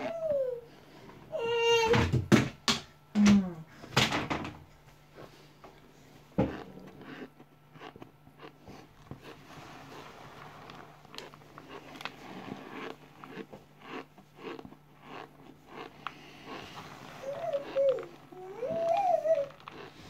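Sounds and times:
cornstarch crunching: 6.5 - 20.0.

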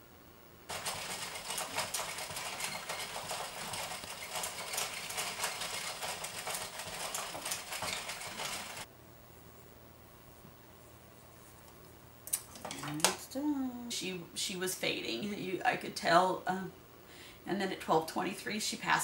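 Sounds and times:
knitting machine rattling clicks: 0.7 - 8.9.

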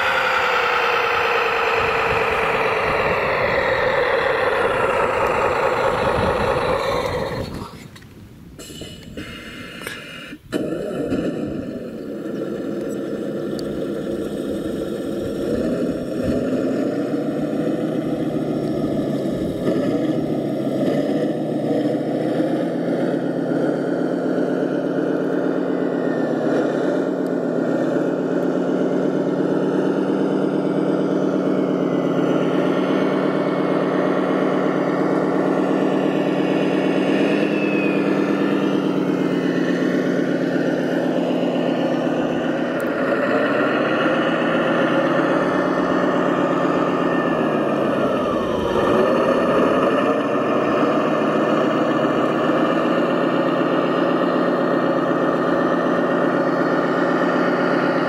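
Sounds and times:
toy truck engine drone: 0.0 - 8.0, 8.6 - 58.0.

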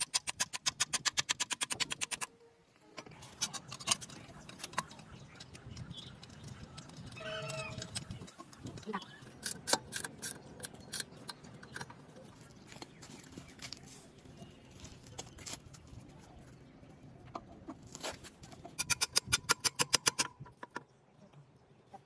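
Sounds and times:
metallic clicks and knocks: 3.0 - 12.0, 18.8 - 20.4.

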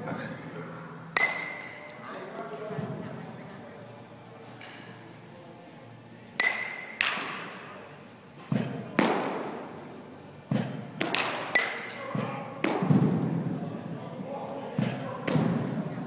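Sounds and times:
balls striking net: 1.1 - 2.0, 6.4 - 7.6, 8.4 - 9.7, 10.5 - 13.4, 14.7 - 15.7
metal bat hitting baseballs: 1.1 - 2.0, 6.4 - 7.6, 8.6 - 9.6, 10.5 - 12.0, 12.6 - 13.0.

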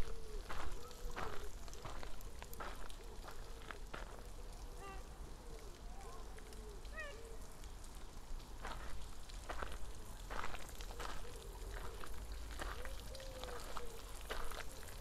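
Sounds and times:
footsteps crunching on gravel: 0.0 - 4.4, 8.6 - 15.0.

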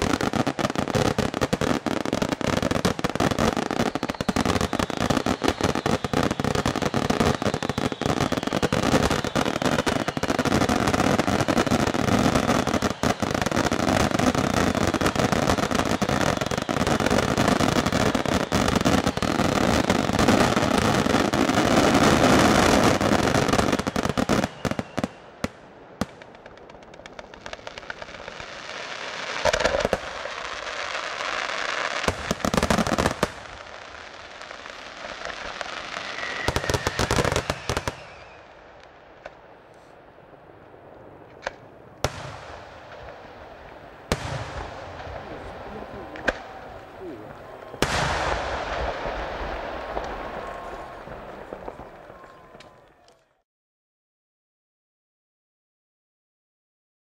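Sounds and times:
firework bangs and crackle: 0.0 - 53.4.

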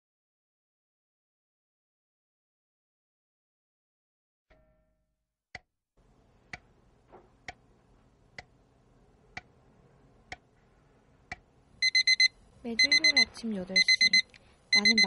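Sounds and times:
alarm clock ticking: 11.3 - 15.0.

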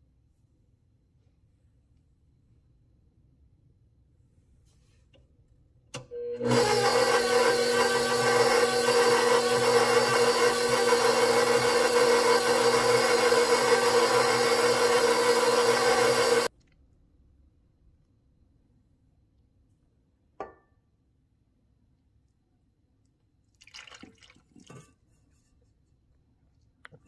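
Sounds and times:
stand mixer motor humming: 6.1 - 16.5.

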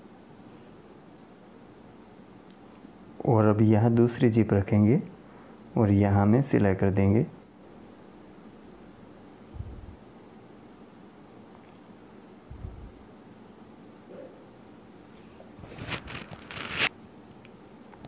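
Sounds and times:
insect trilling: 12.0 - 18.0
clicks and rustling: 15.2 - 16.9.

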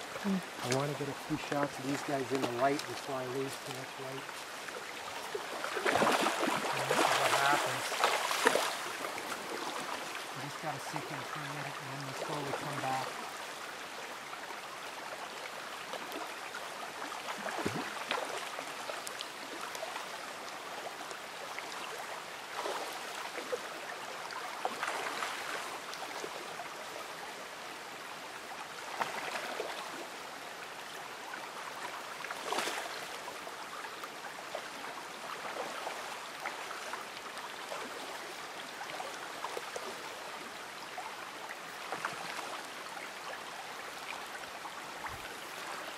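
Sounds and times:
water splashing: 0.0 - 13.4, 17.0 - 20.1
creek water rippling over gravel: 0.0 - 45.9.

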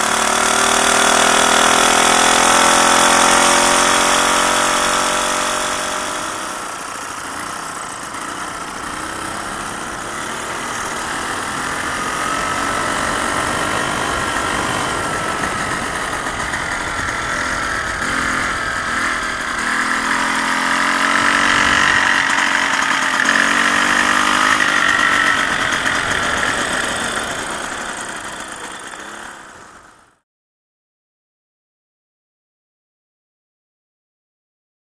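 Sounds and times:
two-stroke engine whining: 0.0 - 30.2.

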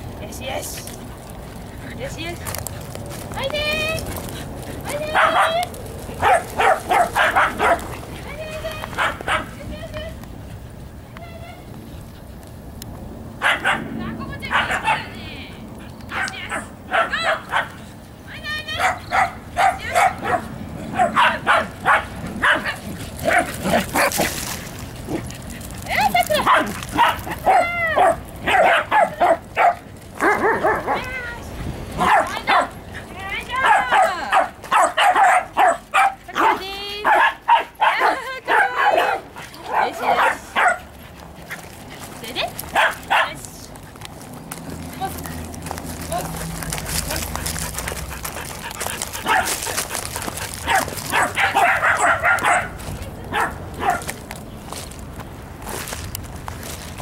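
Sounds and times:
dogs barking: 4.8 - 8.1, 8.9 - 9.6, 13.4 - 15.3, 16.1 - 17.8, 18.7 - 24.3, 25.9 - 31.2, 32.0 - 41.0, 42.7 - 43.4, 46.1 - 54.1
small dogs yapping and whining: 25.9 - 31.2, 46.1 - 54.0.

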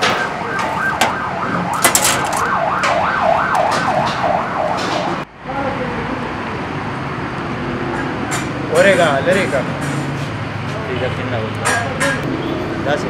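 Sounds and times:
electronic siren wailing: 0.0 - 5.3.

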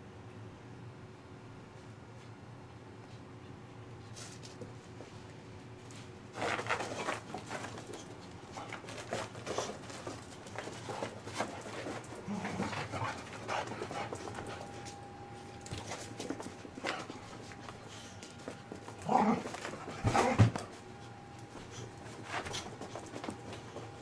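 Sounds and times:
dogs play growling: 6.3 - 24.0.

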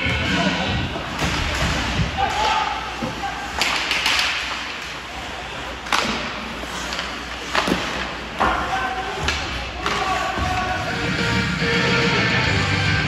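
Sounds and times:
hockey sticks striking puck: 0.0 - 11.8.

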